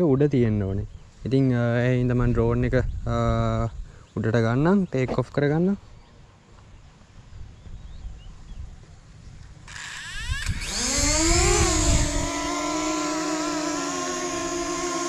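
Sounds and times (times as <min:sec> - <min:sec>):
drone propellers whining: 0:09.7 - 0:15.0.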